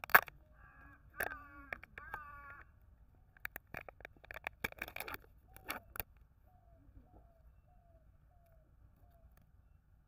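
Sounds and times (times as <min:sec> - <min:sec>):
bird calling: 0:00.0 - 0:03.6, 0:05.0 - 0:09.5.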